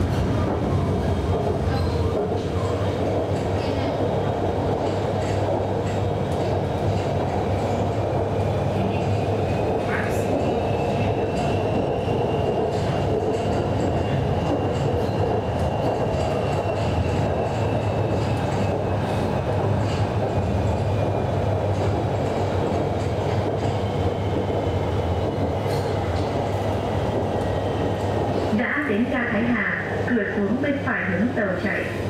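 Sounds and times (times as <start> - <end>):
train wheels rumbling: 0.0 - 32.0
light track clicks: 4.6 - 11.9.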